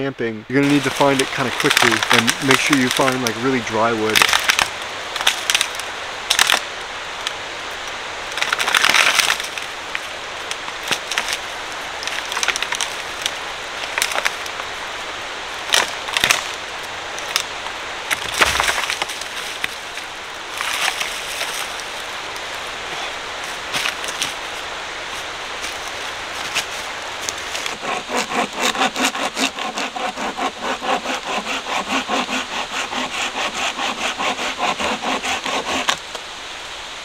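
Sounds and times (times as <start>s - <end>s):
steady hiss: 0.1s - 37.0s
dry wood cracking and snapping: 0.6s - 3.4s, 4.1s - 7.4s, 8.3s - 14.7s, 15.7s - 17.5s, 18.1s - 22.6s, 25.6s - 36.1s
rustling in dry leaves: 0.6s - 37.0s
log thumping on ground: 18.1s - 19.7s.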